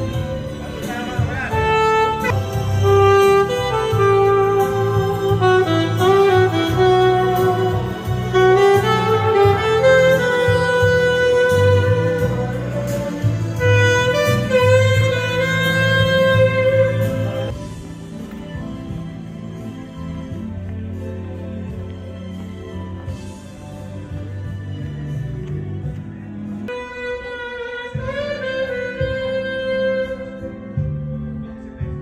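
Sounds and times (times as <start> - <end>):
saxophone melody: 0.0 - 18.1, 23.9 - 32.0.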